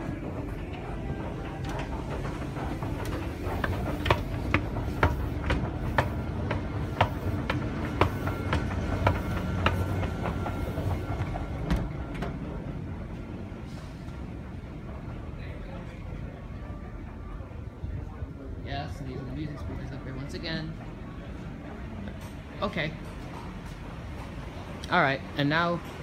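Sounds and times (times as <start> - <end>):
escalator steps clicking: 0.0 - 12.8
escalator rumbling: 0.0 - 26.0.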